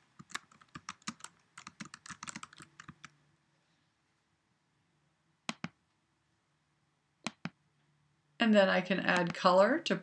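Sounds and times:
computer keyboard typing: 0:00.1 - 0:03.1.

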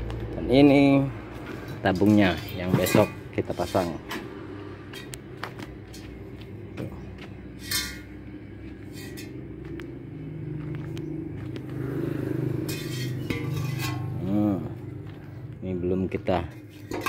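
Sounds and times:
engine running: 0:00.0 - 0:17.0
metal tank clicks and scrapes: 0:01.6 - 0:06.1, 0:07.6 - 0:08.2, 0:08.8 - 0:09.5, 0:12.6 - 0:14.2, 0:16.3 - 0:17.0.

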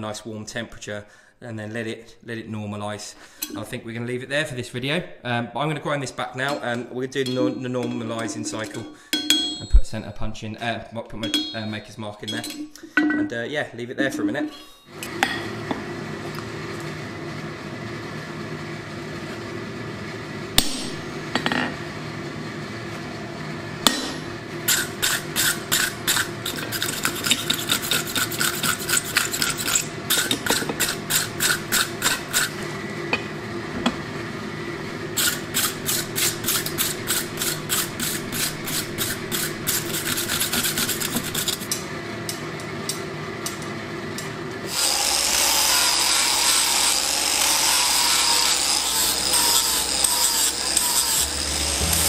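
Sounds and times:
hammer striking steel on anvil: 0:07.2 - 0:09.8, 0:11.2 - 0:11.7, 0:20.6 - 0:21.7, 0:23.8 - 0:26.2
steady hum: 0:20.6 - 0:41.7, 0:48.7 - 0:52.0
angle grinder grinding steel: 0:23.8 - 0:32.6, 0:35.1 - 0:41.8, 0:44.7 - 0:52.0.

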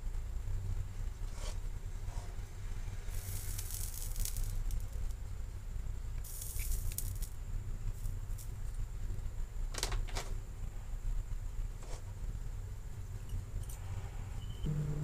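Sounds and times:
solder flux sizzling: 0:00.0 - 0:09.4
steady low hum: 0:00.0 - 0:15.0.

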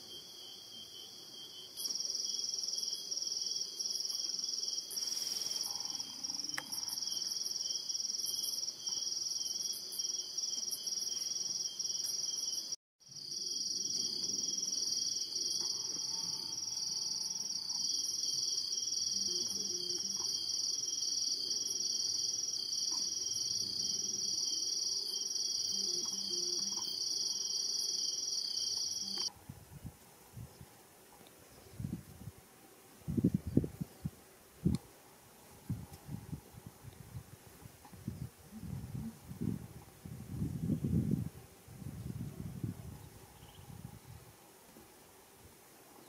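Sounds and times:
crickets trilling: 0:00.0 - 0:29.3.

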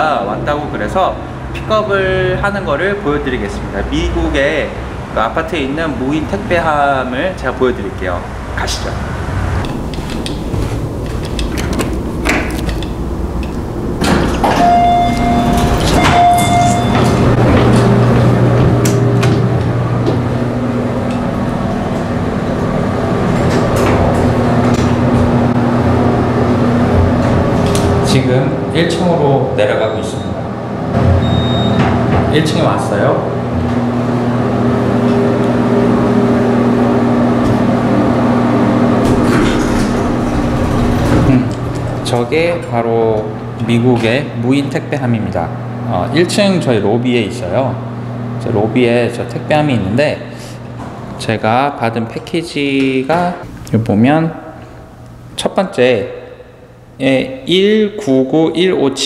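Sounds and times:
elevator doors sliding: 0:00.9 - 0:55.4
electronic beeps: 0:14.6 - 0:17.2, 0:31.2 - 0:31.8.

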